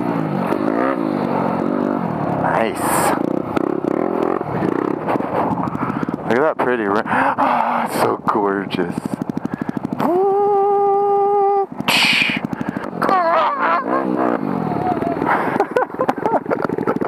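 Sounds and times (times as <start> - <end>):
dirt bike engines revving: 0.0 - 17.0
bikes pushing through tall grass: 2.4 - 17.0.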